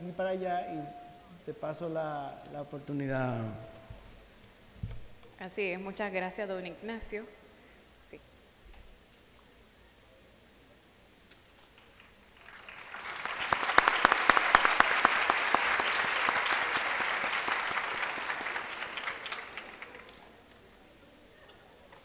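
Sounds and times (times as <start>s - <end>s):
audience applauding: 11.8s - 20.7s.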